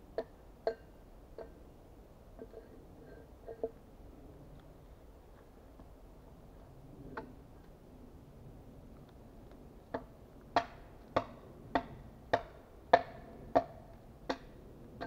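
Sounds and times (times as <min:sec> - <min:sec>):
axe chopping dry wood: 0:10.6 - 0:14.6.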